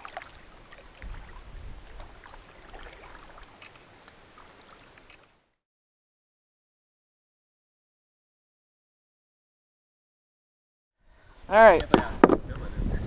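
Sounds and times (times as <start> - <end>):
steady high hiss: 0.0 - 5.5.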